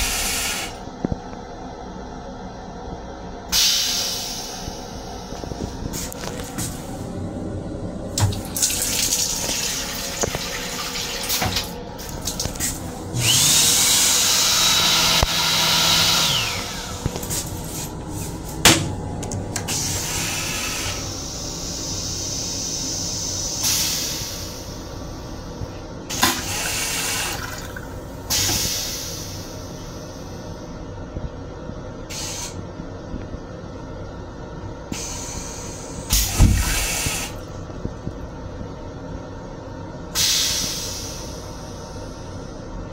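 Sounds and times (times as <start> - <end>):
toilet flushing rush: 0.0 - 0.8, 3.5 - 30.5, 35.0 - 37.6
train rumble: 2.8 - 13.6, 14.8 - 26.3
water running: 8.2 - 13.0, 26.2 - 28.0
motor whine: 11.4 - 22.7.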